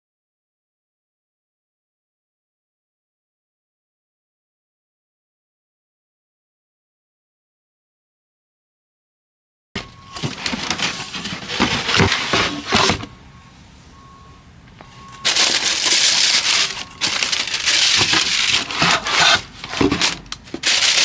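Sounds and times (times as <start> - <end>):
packaging crinkling: 15.2 - 21.0.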